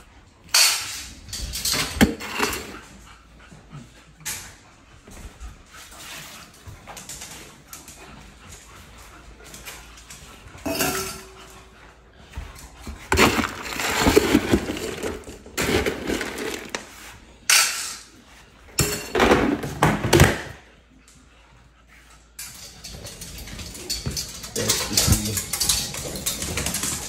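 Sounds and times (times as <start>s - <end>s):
dry kibble rattling: 13.1s - 16.9s, 22.8s - 27.0s.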